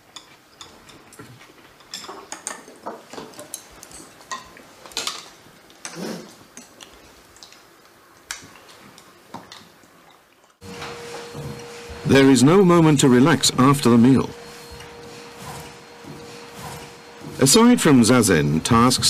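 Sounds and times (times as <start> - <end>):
bowls and utensils clinking: 1.8 - 6.8.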